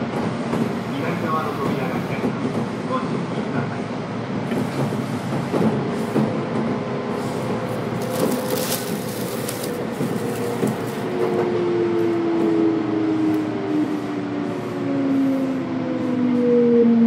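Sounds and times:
train rumble: 0.0s - 17.0s
train motor whine: 7.1s - 16.6s.

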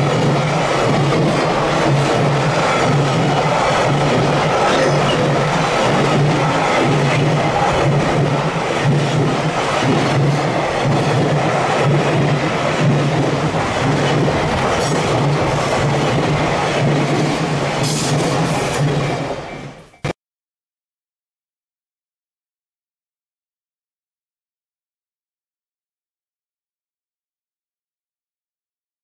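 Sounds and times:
train rumbling past: 0.0s - 20.1s.

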